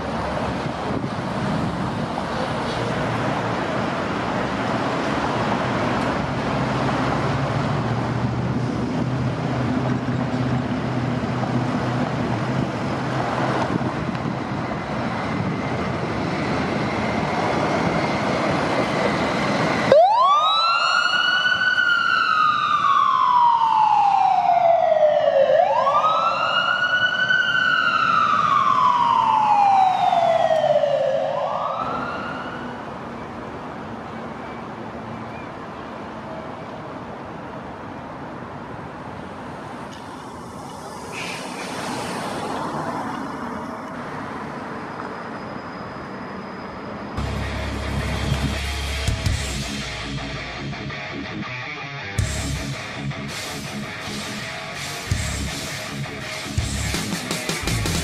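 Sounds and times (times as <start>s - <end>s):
street noise: 0.0s - 58.0s
ambulance wail siren: 13.8s - 33.3s
engine running: 47.2s - 58.0s.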